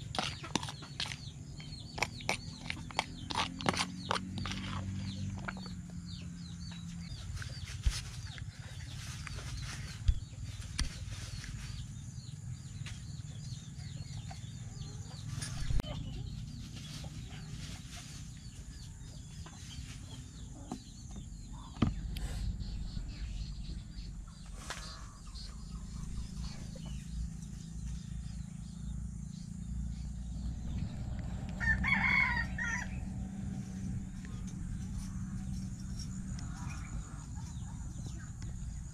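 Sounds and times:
steady low rumble: 15.5s - 38.9s
rooster crowing: 31.5s - 33.2s.

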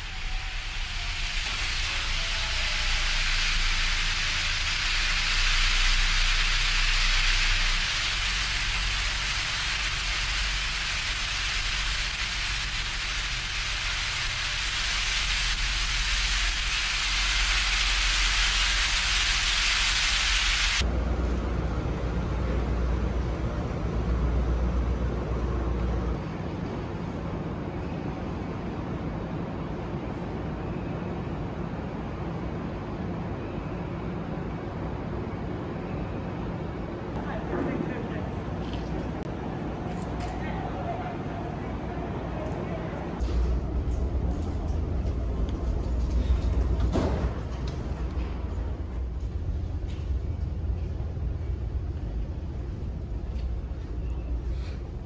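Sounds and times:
rushing hiss of air: 0.0s - 20.8s
low rumble: 0.0s - 26.2s.

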